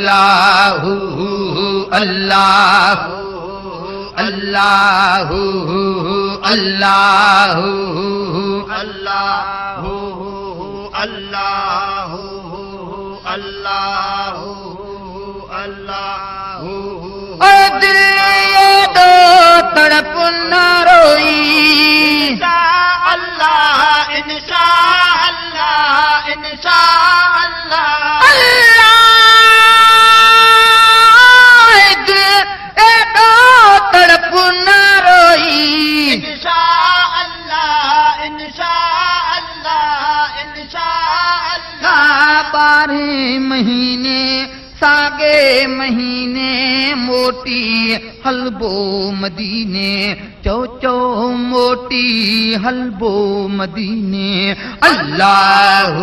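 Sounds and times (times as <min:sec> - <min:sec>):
person singing devotional song: 0:00.0 - 0:56.0
men chanting: 0:54.6 - 0:56.0.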